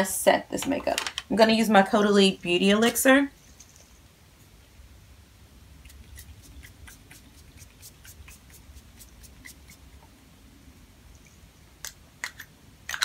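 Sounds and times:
pump spray spritzing: 5.8s - 9.9s.

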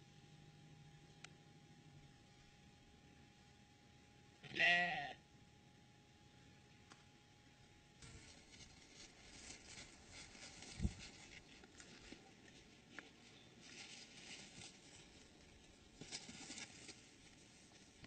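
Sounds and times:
animals rustling in dry grass: 8.0s - 18.0s.

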